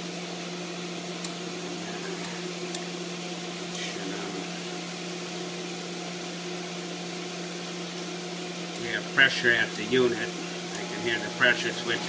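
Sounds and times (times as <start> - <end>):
electric motor hum: 8.4 - 12.0.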